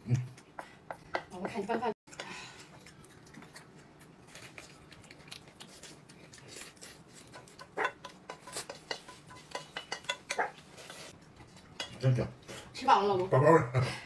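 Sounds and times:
utensils clinking against plates: 0:07.3 - 0:12.7.

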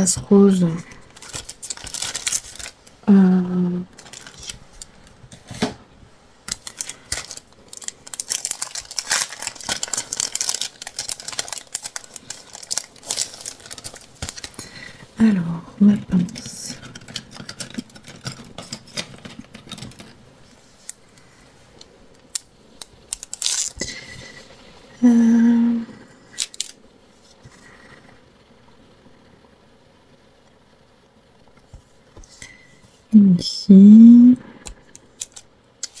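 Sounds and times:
steady hum: 0:00.0 - 0:36.0
person humming: 0:03.1 - 0:03.9, 0:25.0 - 0:26.1, 0:33.2 - 0:34.6.

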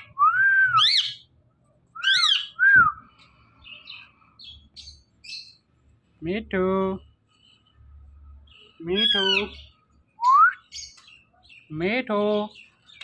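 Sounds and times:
parakeet whistled calls: 0:00.7 - 0:01.3, 0:02.0 - 0:02.8, 0:08.9 - 0:09.6
parakeet chirps: 0:02.0 - 0:02.6, 0:08.5 - 0:09.8.

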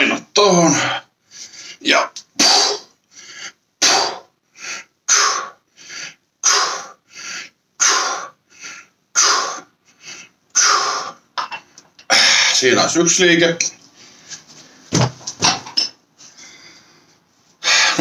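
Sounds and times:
man breathing in: 0:04.5 - 0:06.2, 0:06.8 - 0:07.6, 0:08.4 - 0:09.0, 0:16.2 - 0:18.0.

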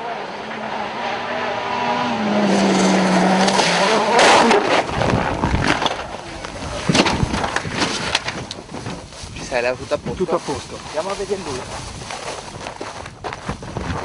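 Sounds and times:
car crash: 0:01.7 - 0:06.2
car tumbling impacts: 0:02.5 - 0:09.1.

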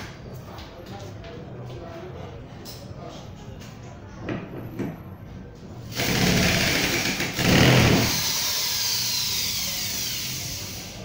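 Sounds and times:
electric drill boring into wood: 0:06.0 - 0:11.0.

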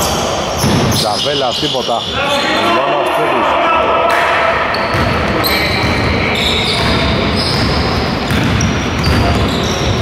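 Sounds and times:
sneakers squeaking on gym floor: 0:00.0 - 0:02.6, 0:04.7 - 0:10.0
basketball bouncing: 0:04.8 - 0:06.2, 0:06.8 - 0:10.0.

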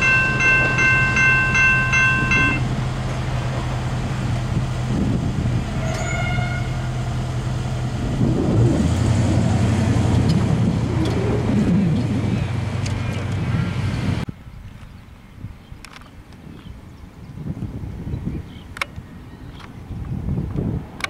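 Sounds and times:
brief higher tone: 0:00.0 - 0:02.6
low engine hum: 0:00.0 - 0:14.3.

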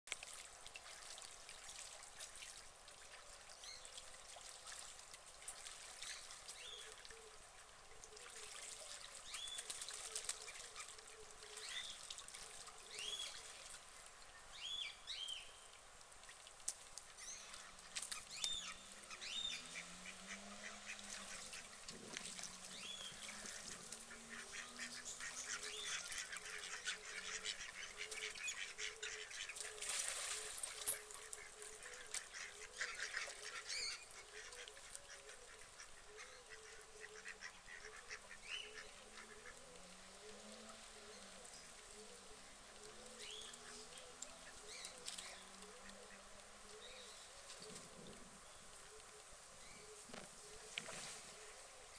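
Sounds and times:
water splashing: 0:00.1 - 0:14.2, 0:16.2 - 0:35.1
duck flapping wings in water: 0:08.4 - 0:12.6, 0:29.5 - 0:31.4
ducks quacking: 0:18.9 - 0:21.8, 0:23.2 - 0:29.8, 0:31.3 - 0:39.6.

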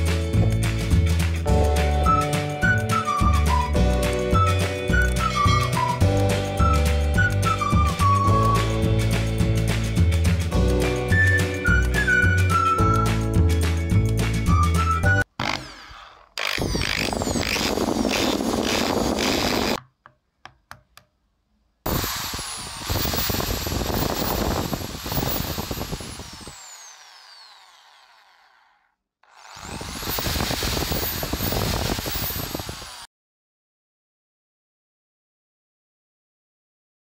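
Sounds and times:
electric drill motor running: 0:15.4 - 0:19.8, 0:21.9 - 0:33.1.

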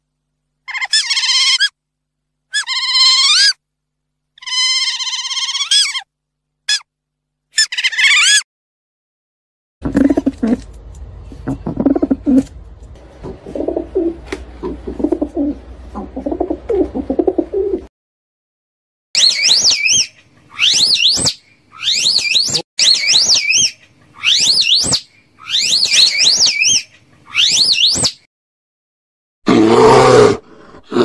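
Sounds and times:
animal high wavering calls: 0:00.6 - 0:01.8, 0:02.5 - 0:03.6, 0:04.4 - 0:06.1, 0:06.7 - 0:06.9, 0:07.6 - 0:08.4, 0:19.2 - 0:28.2
pigeons cooing: 0:09.8 - 0:10.7, 0:11.4 - 0:12.5, 0:13.2 - 0:17.9
low steady hum: 0:09.8 - 0:17.9.

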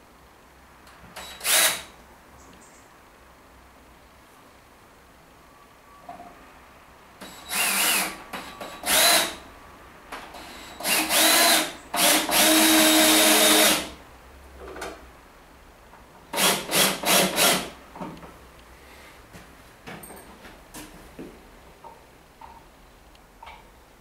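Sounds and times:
cordless drill driving screws into wood: 0:01.2 - 0:01.9, 0:07.2 - 0:09.4, 0:10.4 - 0:13.9, 0:16.4 - 0:17.7.

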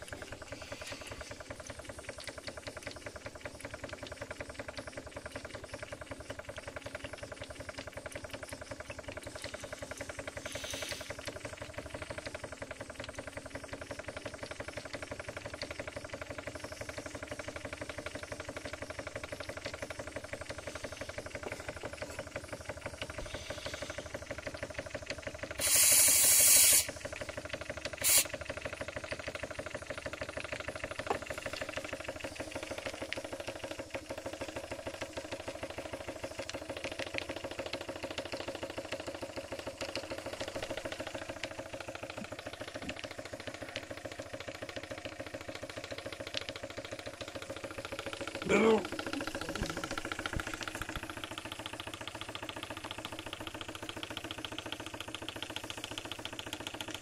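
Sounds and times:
model steam engine running: 0:00.0 - 0:57.0
steam hissing: 0:09.7 - 0:11.3, 0:25.4 - 0:27.3, 0:28.0 - 0:28.4.

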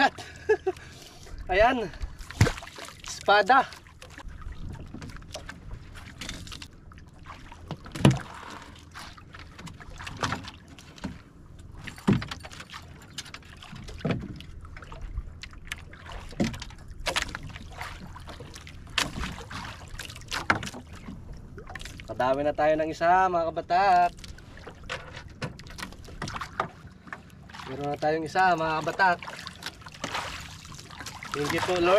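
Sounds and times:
wind: 0:00.0 - 0:31.9
knocks and clacks on a boat: 0:00.7 - 0:31.9
water washing: 0:27.5 - 0:31.9.

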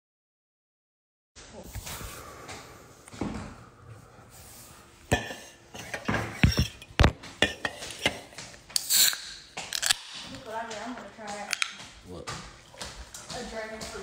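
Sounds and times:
kitchenware clattering: 0:05.1 - 0:14.0.

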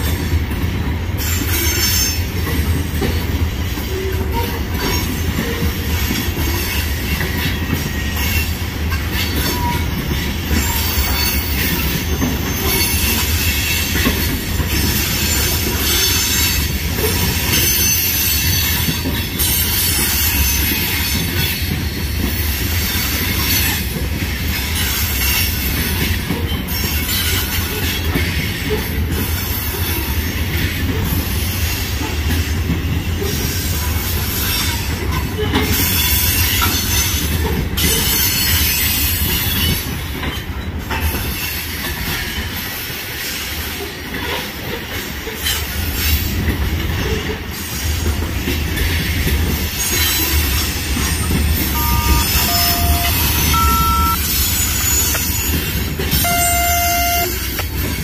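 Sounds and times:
train wheels rumbling on rail: 0:00.0 - 0:58.0
wheel squeal: 0:49.8 - 0:57.6.

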